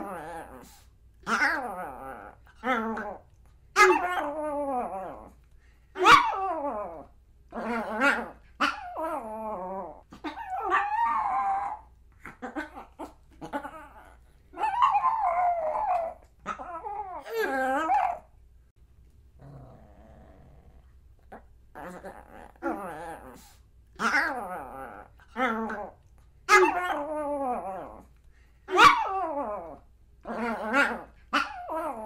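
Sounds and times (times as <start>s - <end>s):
small dog barking and howling: 0.0s - 3.2s, 3.8s - 5.4s, 6.0s - 18.4s, 24.0s - 28.1s, 28.7s - 32.0s.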